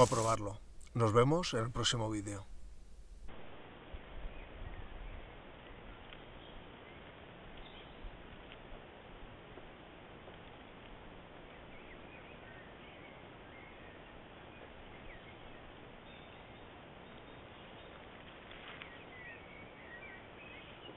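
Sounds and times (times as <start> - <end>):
rustle: 0.0 - 20.9
steady hiss: 0.0 - 20.9
high bird chirps: 11.5 - 20.9.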